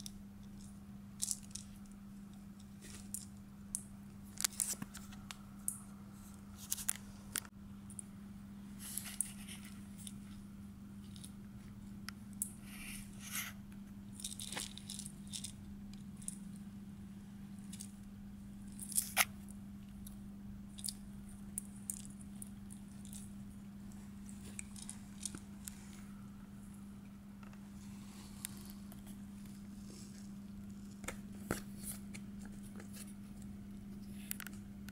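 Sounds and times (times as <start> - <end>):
steady low hum: 0.0 - 34.9
kitten playing with toys: 8.8 - 11.6, 12.4 - 16.6, 17.6 - 26.2.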